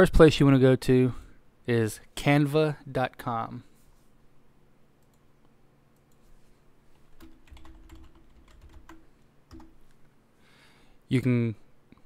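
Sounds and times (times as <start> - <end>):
typing on computer keyboard: 7.1 - 9.9.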